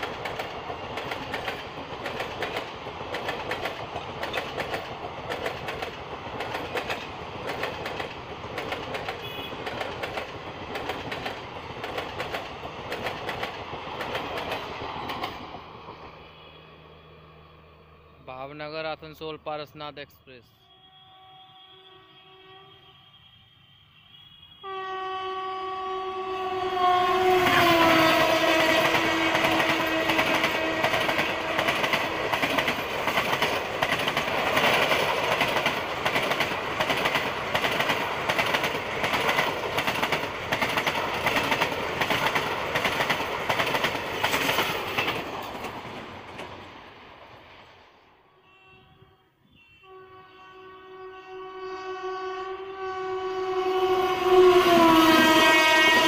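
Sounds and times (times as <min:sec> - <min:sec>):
train wheels clattering: 0:00.0 - 0:16.2, 0:27.8 - 0:46.7
locomotive horn blast: 0:09.2 - 0:09.6, 0:20.5 - 0:31.8, 0:48.3 - 0:56.0.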